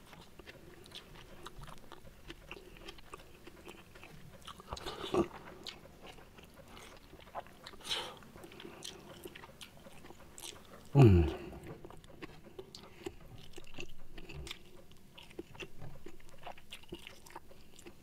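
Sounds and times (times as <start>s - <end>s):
man chewing food: 0.0s - 18.0s
lip smacks and mouth clicks: 0.1s - 11.0s.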